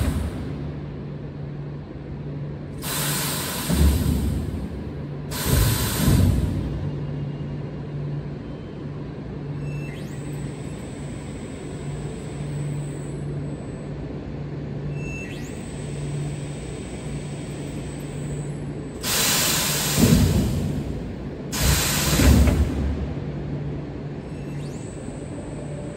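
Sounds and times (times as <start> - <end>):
factory hall hum: 0.0 - 25.9
loud hiss: 2.8 - 4.3, 19.0 - 20.8, 21.5 - 22.3
faint pulsing tone: 6.9 - 19.0, 24.0 - 25.9.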